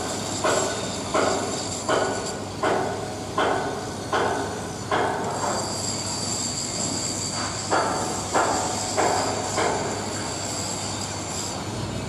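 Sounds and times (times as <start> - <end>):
hammer striking steel pins: 0.4 - 5.6, 7.3 - 10.0.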